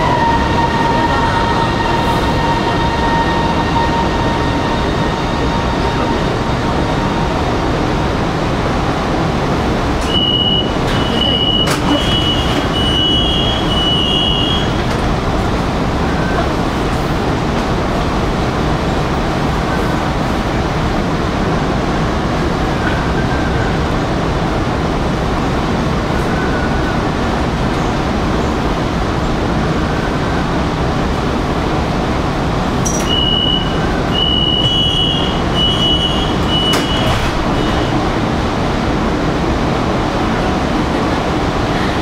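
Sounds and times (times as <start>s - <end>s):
train humming: 0.0s - 42.0s
sliding doors shutting: 10.0s - 15.1s, 32.9s - 38.2s
high warning beeps: 32.9s - 37.9s.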